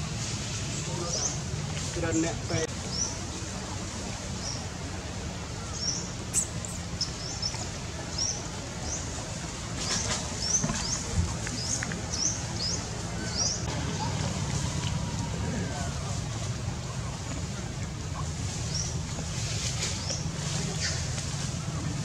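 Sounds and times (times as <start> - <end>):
low background hum: 0.0 - 22.0
small bird chirping: 5.7 - 9.0.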